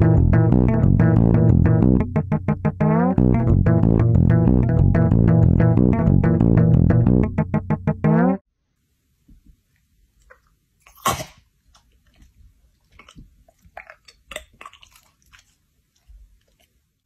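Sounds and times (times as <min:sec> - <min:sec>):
dog licking and chewing: 0:10.2 - 0:17.0.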